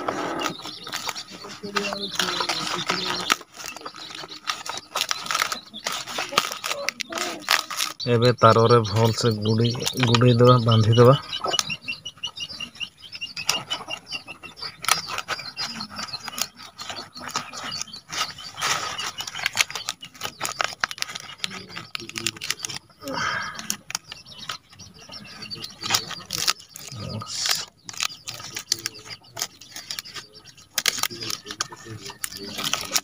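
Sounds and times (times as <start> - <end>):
leaves crackling and rustling: 0.4 - 8.2.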